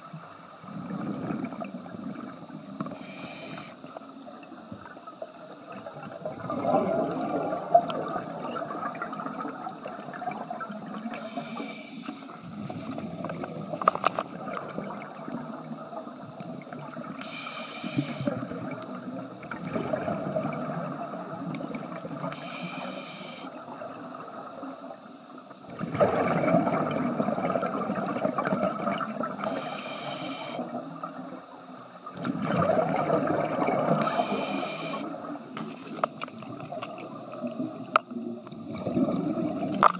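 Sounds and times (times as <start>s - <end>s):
regulator hissing inhales: 2.9s - 3.8s, 11.2s - 12.4s, 17.2s - 18.3s, 22.3s - 23.5s, 29.4s - 30.7s, 34.0s - 35.1s
bubbling exhalations: 6.2s - 10.5s, 25.8s - 29.2s, 32.2s - 34.0s, 38.6s - 39.9s.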